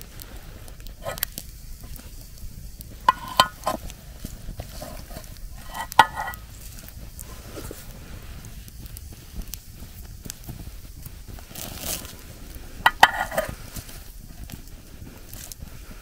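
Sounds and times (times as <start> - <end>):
metal cookware clinking: 1.0 - 1.3, 3.0 - 3.8, 4.8 - 6.4, 12.9 - 13.5.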